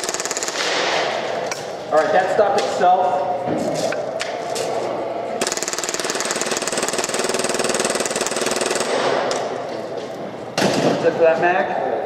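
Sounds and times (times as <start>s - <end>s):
rapid airsoft pistol shots: 0.0s - 1.2s, 5.4s - 9.4s.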